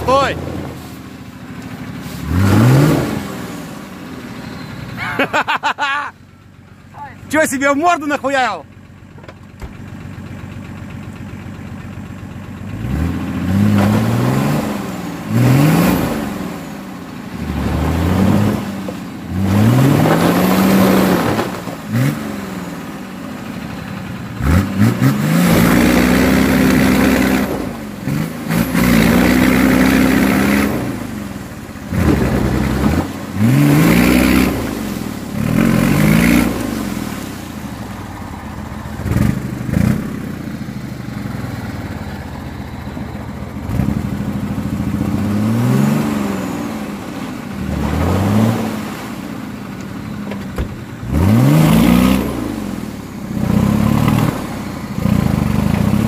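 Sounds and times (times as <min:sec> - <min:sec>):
truck engine revving: 0:00.0 - 0:06.2, 0:12.6 - 0:56.0.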